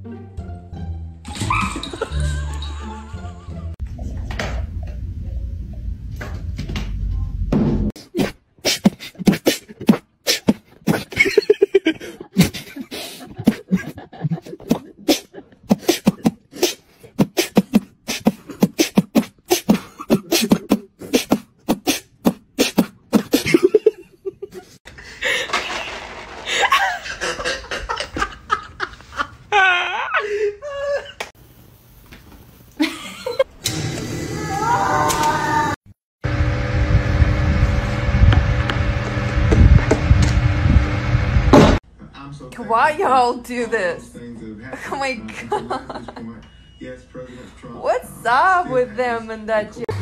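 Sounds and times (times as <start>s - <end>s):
people laughing: 1.6s - 3.8s, 10.9s - 16.3s, 23.3s - 25.7s, 26.4s - 31.3s, 32.8s - 33.5s, 44.7s - 46.4s
beatboxing: 8.0s - 11.2s, 12.4s - 23.7s.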